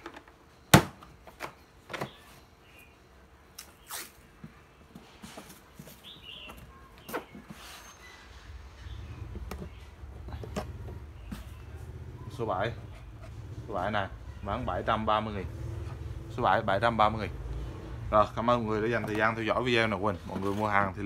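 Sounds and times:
masking tape pulled off roll: 3.6s - 4.3s.

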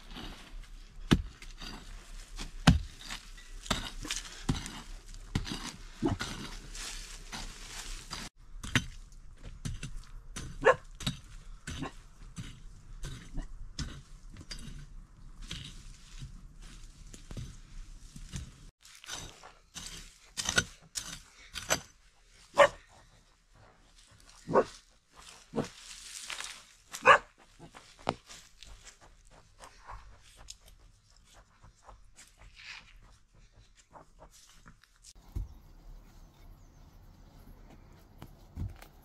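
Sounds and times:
hoe chopping stony soil: 0.0s - 23.2s, 35.1s - 36.0s, 37.8s - 39.0s
dog barking: 10.6s - 10.9s, 22.5s - 22.8s, 24.5s - 24.8s, 27.0s - 27.4s.

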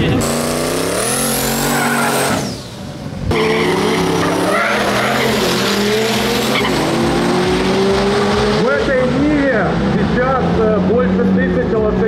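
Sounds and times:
drag car engine running hard: 0.0s - 12.0s
tyres squealing: 1.3s - 2.6s, 3.3s - 6.9s.

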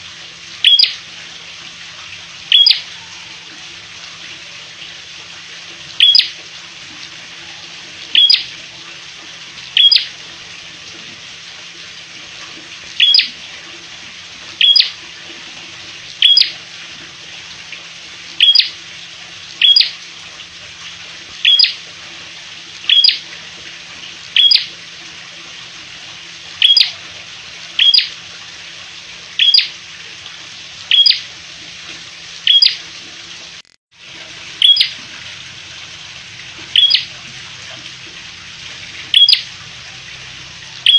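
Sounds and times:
bird chirping: 0.6s - 1.0s, 2.5s - 2.8s, 6.0s - 6.3s, 8.2s - 8.5s, 9.8s - 10.1s, 13.0s - 13.3s, 14.6s - 14.9s, 18.4s - 18.7s, 19.6s - 19.9s, 21.4s - 21.8s, 22.9s - 23.2s, 24.4s - 24.7s, 26.6s - 26.9s, 27.8s - 28.1s, 29.4s - 29.7s, 30.9s - 31.2s, 32.5s - 32.8s, 34.6s - 34.9s, 36.8s - 37.0s, 39.1s - 39.4s.

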